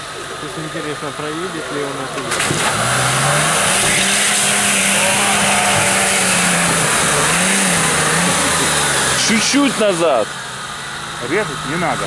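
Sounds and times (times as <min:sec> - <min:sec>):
suv engine revving hard: 0:00.1 - 0:12.0.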